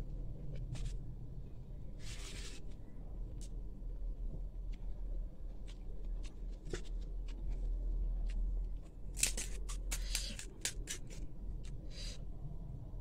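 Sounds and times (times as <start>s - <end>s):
low steady hum: 0.0s - 13.0s
crisp shell cracking: 9.1s - 11.8s.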